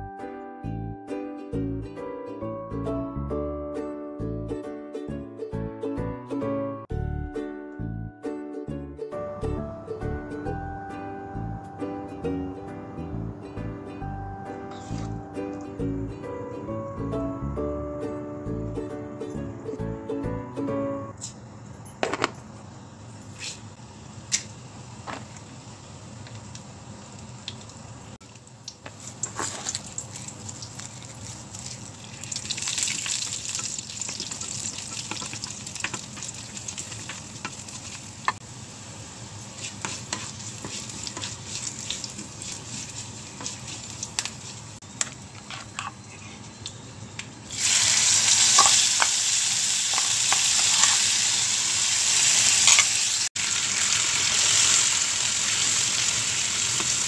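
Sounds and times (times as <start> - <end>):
wooden spatula scraping and tapping: 14.7 - 15.2, 39.5 - 46.5
hot oil sizzling in a pan: 23.8 - 44.8, 47.4 - 57.0
spices crackling: 25.8 - 57.0.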